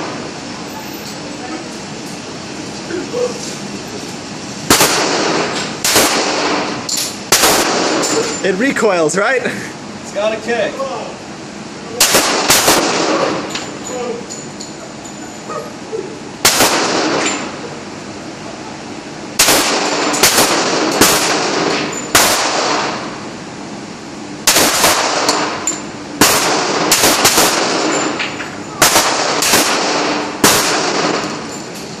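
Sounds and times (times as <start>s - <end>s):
pistol shots with ringing echo: 4.7s - 8.3s, 11.9s - 13.5s, 16.4s - 17.5s, 19.4s - 23.1s, 24.4s - 31.5s.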